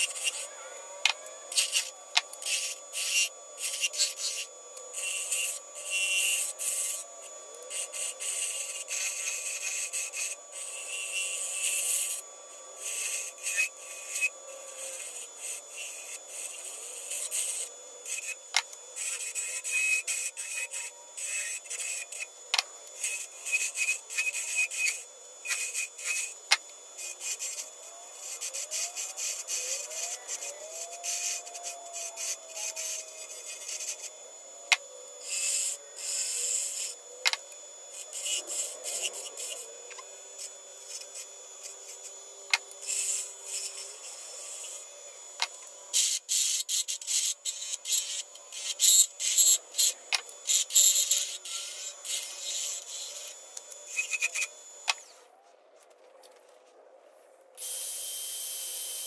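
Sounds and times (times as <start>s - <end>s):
lathe tool scraping wood: 0.0s - 0.5s, 12.8s - 22.3s, 22.9s - 26.4s, 42.8s - 44.9s, 46.0s - 54.6s.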